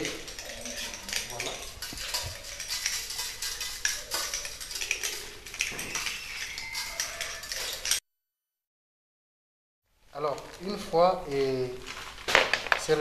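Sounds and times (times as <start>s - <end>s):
spatula scraping inside bottle: 0.0s - 8.0s.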